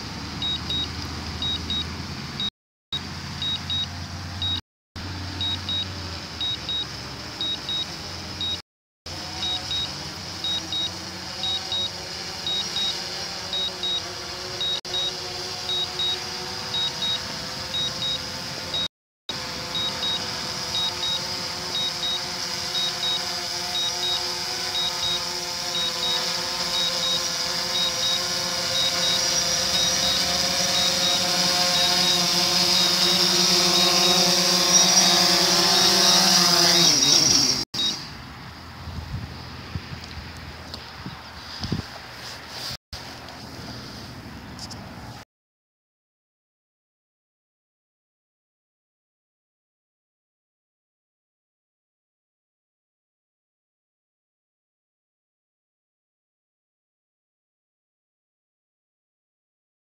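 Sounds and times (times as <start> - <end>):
drone propellers whining: 0.0 - 38.2
remote controller beeping in pairs: 0.4 - 2.5, 3.4 - 4.6, 5.4 - 8.6, 9.4 - 18.9, 19.7 - 38.0.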